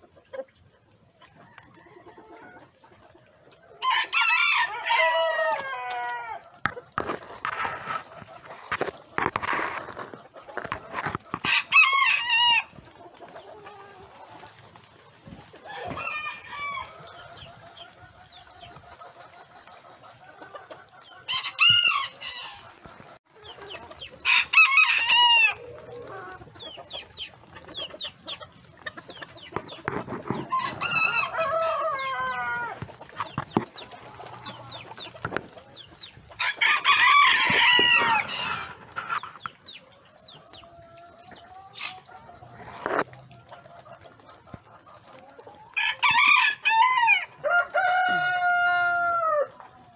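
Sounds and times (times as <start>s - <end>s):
chickens clucking: 0.0s - 49.9s
roosters crowing: 3.8s - 7.1s, 11.3s - 12.8s, 15.6s - 17.4s, 21.2s - 22.9s, 24.2s - 26.5s, 29.9s - 32.9s, 36.4s - 39.4s, 45.7s - 49.9s.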